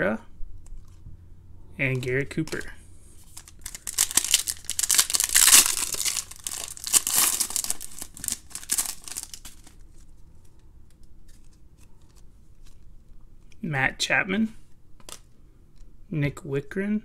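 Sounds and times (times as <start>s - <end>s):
foil wrapper tearing and crinkling: 3.3s - 9.8s.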